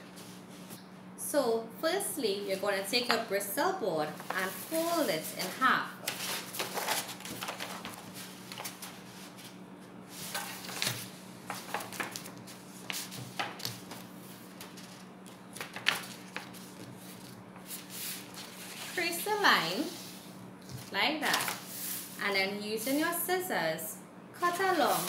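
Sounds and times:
faint steady hum: 0.0s - 25.0s
paper board rustling and crackling: 4.0s - 19.2s, 19.8s - 22.2s, 24.6s - 25.0s.

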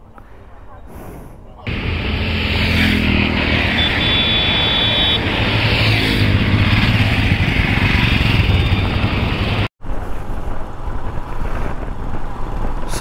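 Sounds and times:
motorcycles riding past: 1.7s - 9.7s.

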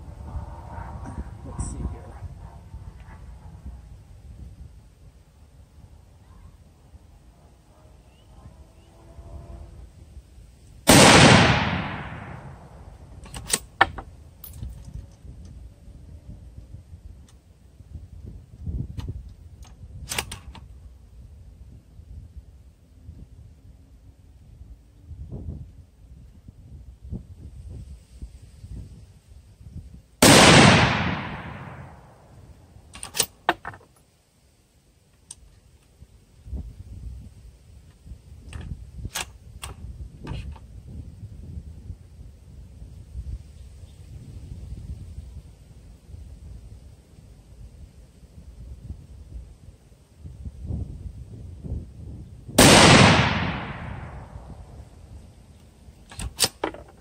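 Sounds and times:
rifle shot echoing: 10.9s - 12.8s, 30.2s - 32.2s, 52.6s - 54.6s
rifle bolt metallic clicks: 13.2s - 14.7s, 19.0s - 20.7s, 32.9s - 33.7s, 56.1s - 56.9s
rifle bolt clicks: 32.9s - 33.4s, 56.1s - 56.8s.

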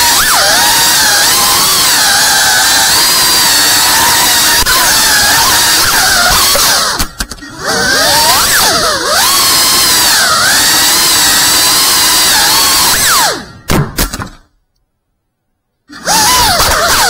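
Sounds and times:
quadcopter motors whining: 0.0s - 13.7s, 15.9s - 17.0s
sharp knocks: 13.7s - 14.5s.

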